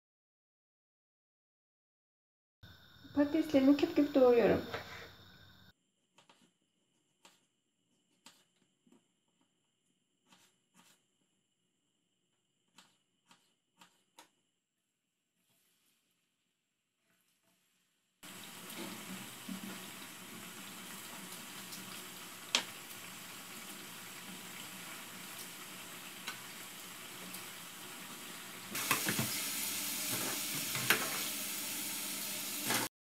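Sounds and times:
potatoes deep-frying in oil: 2.6s - 5.7s, 17.1s - 32.9s.

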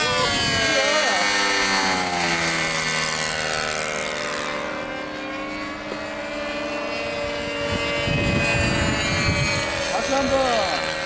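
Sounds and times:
wind rumble on microphone: 0.0s - 1.3s, 6.9s - 11.0s
model airplane engine droning: 0.0s - 11.0s.

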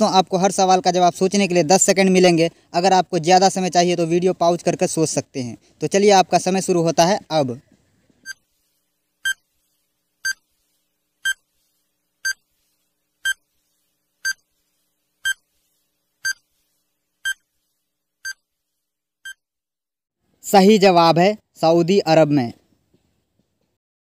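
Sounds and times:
short electronic beeps: 10.2s - 10.4s, 11.2s - 11.4s, 13.2s - 13.4s, 15.2s - 15.4s, 16.2s - 16.4s, 17.2s - 17.4s.

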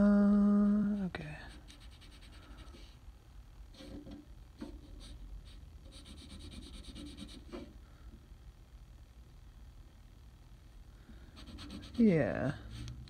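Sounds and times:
pencil scribbling on paper: 1.5s - 3.0s, 4.7s - 7.7s, 11.4s - 12.9s.

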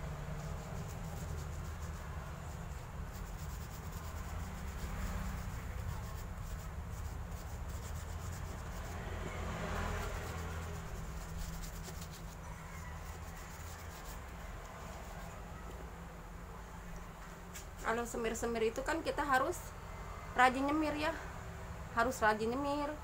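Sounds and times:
steady low hum: 0.0s - 23.0s
paintbrush rubbing on shoe: 0.1s - 15.5s.

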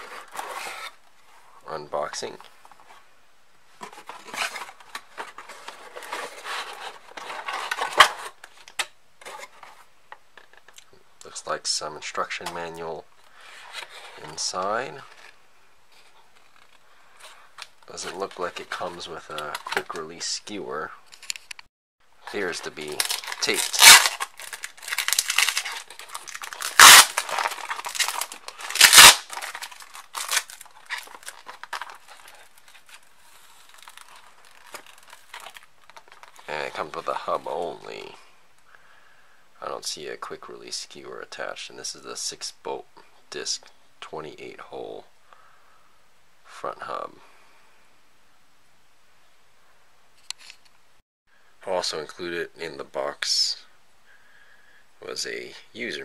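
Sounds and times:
cardboard and plastic crinkling: 0.0s - 1.0s, 3.8s - 10.7s, 13.5s - 20.2s, 22.2s - 38.1s
cardboard scraping and rustling: 0.0s - 1.0s, 3.8s - 8.6s, 9.2s - 9.9s
packing tape ripping: 22.6s - 33.0s.

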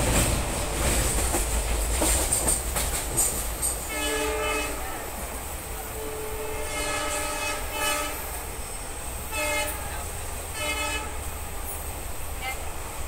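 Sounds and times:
train carriage rumbling: 0.0s - 13.0s
train horn blasts: 3.8s - 5.1s, 5.8s - 8.5s, 9.2s - 11.3s.

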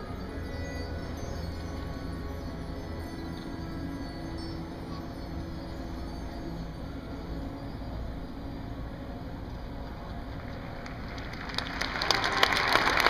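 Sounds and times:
stadium crowd hum: 9.9s - 13.0s
audience applause: 10.4s - 13.0s.

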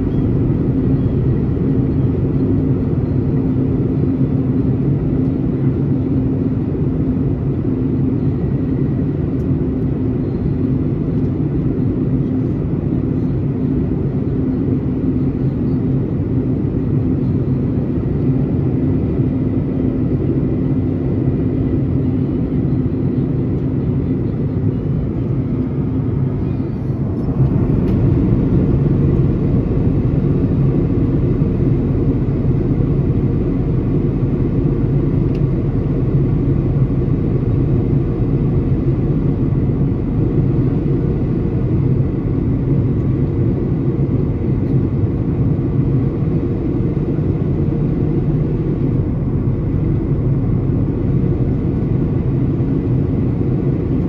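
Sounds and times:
jet engine cabin drone: 0.0s - 54.0s.

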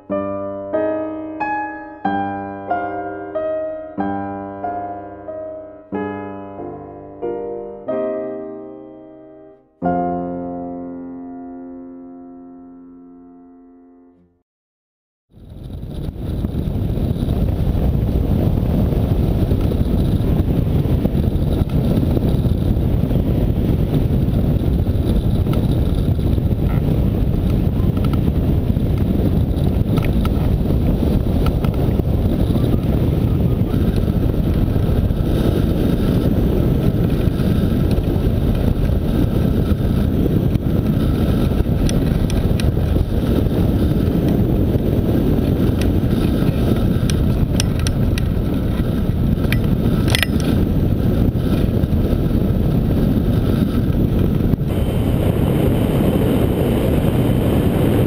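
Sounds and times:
wind buffeting microphone: 15.3s - 58.0s.

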